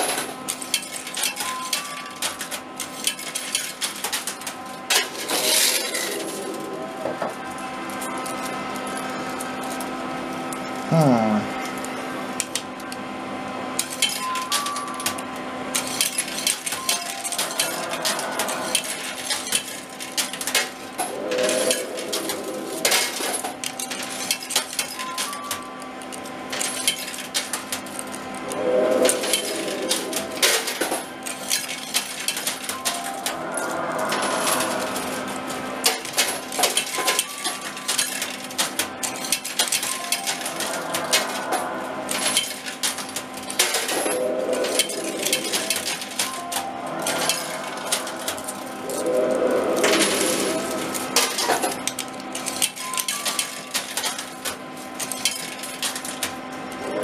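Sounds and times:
machine humming: 0:00.0 - 0:57.0
coins dropping and clinking: 0:13.8 - 0:28.2, 0:29.1 - 0:49.1, 0:49.7 - 0:56.3.

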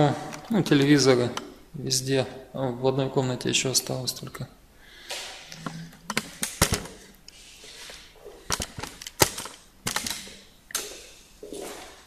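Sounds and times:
sharp irregular clicks and knocks: 0:05.5 - 0:07.0, 0:08.5 - 0:10.9.

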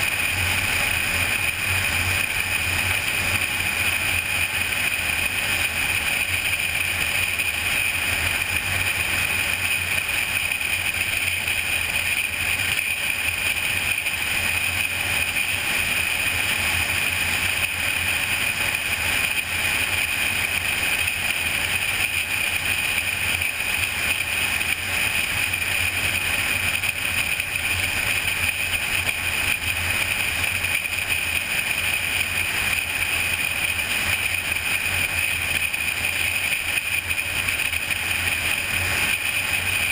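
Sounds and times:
car road and wind noise: 0:00.0 - 0:39.9.

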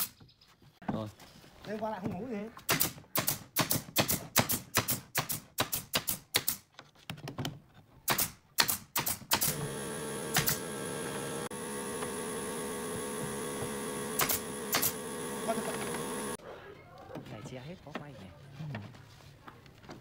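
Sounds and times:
nail gun firing into wood: 0:02.7 - 0:06.6, 0:08.1 - 0:09.7, 0:10.3 - 0:10.7, 0:14.0 - 0:15.0
air compressor humming: 0:09.4 - 0:16.4.

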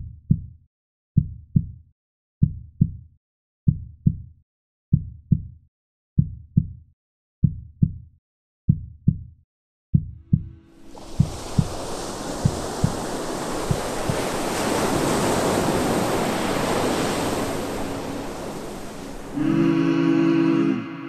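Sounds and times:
heartbeat thumps: 0:00.0 - 0:00.6, 0:01.2 - 0:01.8, 0:02.4 - 0:03.0, 0:03.7 - 0:04.3, 0:04.9 - 0:05.6, 0:06.2 - 0:06.8, 0:07.4 - 0:08.0, 0:08.7 - 0:09.3, 0:09.9 - 0:14.4.

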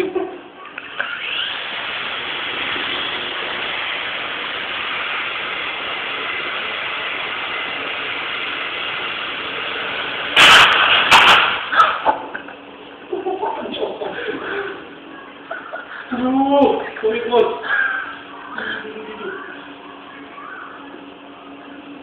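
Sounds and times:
toy helicopter rotors whirring: 0:00.7 - 0:12.1
sudden loud noise: 0:10.1 - 0:12.1.

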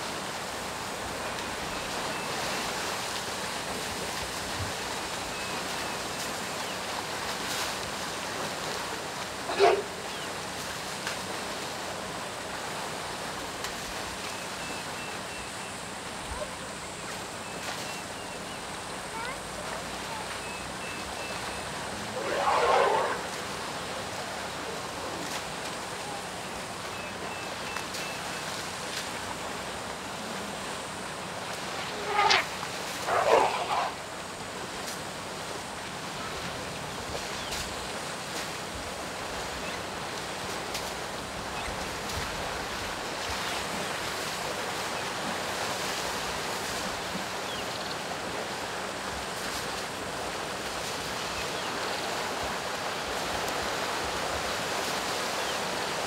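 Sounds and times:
elephants splashing in water: 0:19.7 - 0:56.0.

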